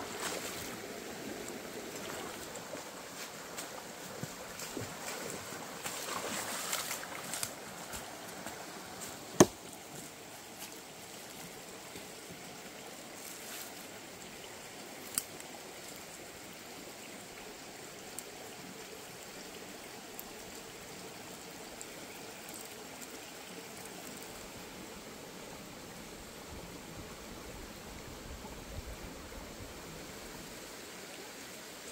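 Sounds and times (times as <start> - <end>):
rushing rocky stream: 0.0 - 31.9.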